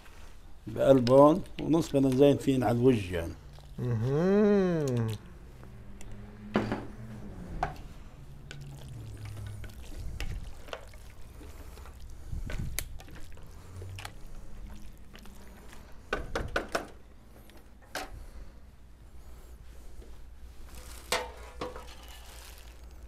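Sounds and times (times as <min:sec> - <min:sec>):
spatula stirring wet sauce: 0:00.1 - 0:03.8, 0:07.6 - 0:16.3.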